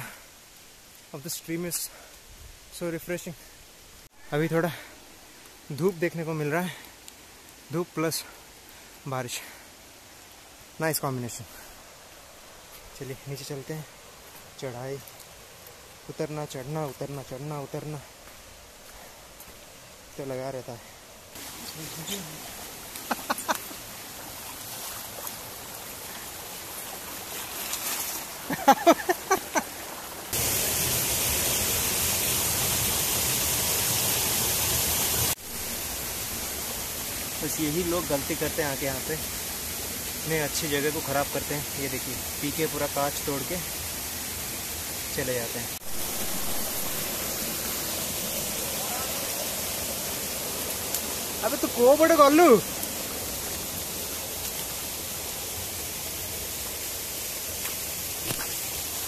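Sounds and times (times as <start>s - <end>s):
soft rush of flowing water: 0.0s - 59.0s
waterfall rushing: 19.0s - 59.0s.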